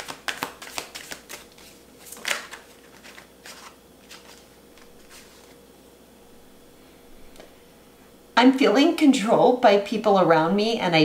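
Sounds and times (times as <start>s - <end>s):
card snap: 0.0s - 2.7s
cards being shuffled: 0.0s - 5.6s.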